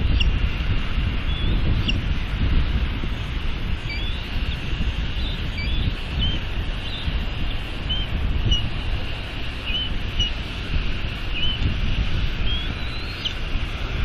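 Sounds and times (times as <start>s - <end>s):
wind buffeting microphone: 0.0s - 14.0s
high bird chirps: 1.3s - 2.0s, 3.8s - 7.1s, 7.8s - 8.7s, 9.6s - 10.4s, 11.3s - 11.6s, 12.4s - 13.4s.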